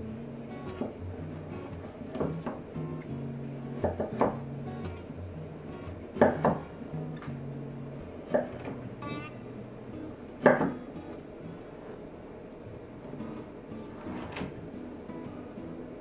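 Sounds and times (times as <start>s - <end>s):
knife chopping on wooden board: 3.8s - 4.4s, 6.2s - 6.7s, 8.3s - 8.8s, 10.4s - 10.8s.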